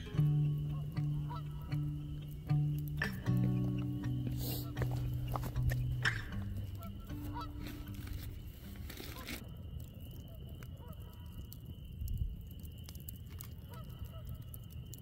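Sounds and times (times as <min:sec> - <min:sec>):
faint bird calls: 0:00.0 - 0:09.4
campfire crackling and popping: 0:00.0 - 0:15.0.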